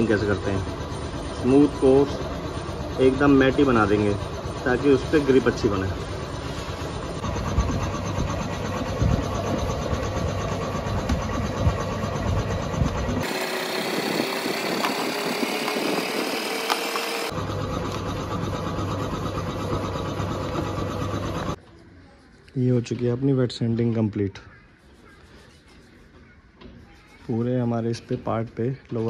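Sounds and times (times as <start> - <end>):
steady low hum: 0.0 - 22.8
sandpaper rubbing on plastic: 24.8 - 26.2.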